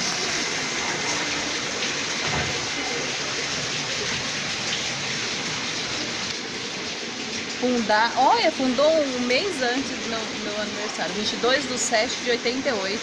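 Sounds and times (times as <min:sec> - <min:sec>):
running water rushing: 0:00.0 - 0:13.0.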